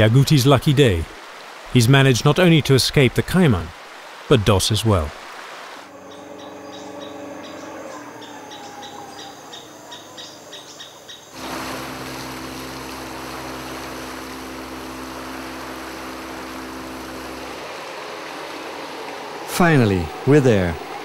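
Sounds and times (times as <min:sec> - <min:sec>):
rushing water: 0:00.0 - 0:10.0, 0:11.3 - 0:21.0
boat motor droning: 0:05.9 - 0:09.7, 0:11.4 - 0:21.0.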